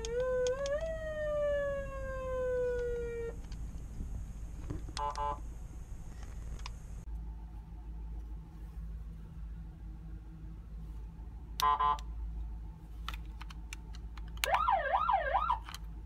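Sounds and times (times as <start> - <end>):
electronic car siren wailing: 0.0 - 3.4, 14.4 - 15.6
burst of siren tones with clicks: 0.0 - 3.6, 14.4 - 15.6.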